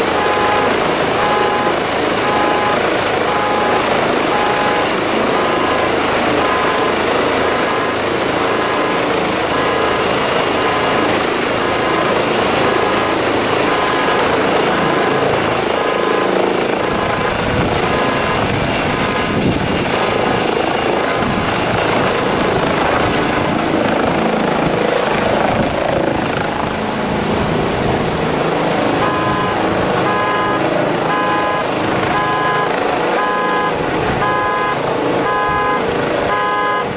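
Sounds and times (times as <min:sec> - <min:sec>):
repeated beeping: 0:00.0 - 0:20.5, 0:28.9 - 0:36.9
helicopter rotor and engine noise: 0:00.0 - 0:36.9
high turbine whine: 0:00.0 - 0:36.9.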